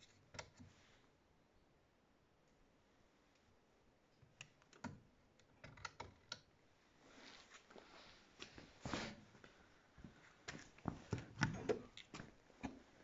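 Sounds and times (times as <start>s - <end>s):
soft rustle: 6.9s - 11.1s.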